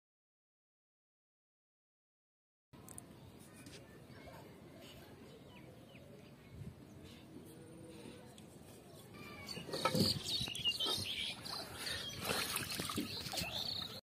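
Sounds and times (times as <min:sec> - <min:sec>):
person wading through water: 0:10.8 - 0:14.0.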